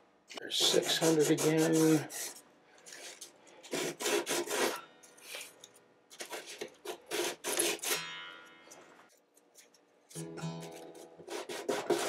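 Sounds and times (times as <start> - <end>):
sandpaper rubbing on guitar frets: 0.6 - 5.5, 6.2 - 8.0, 10.5 - 12.0.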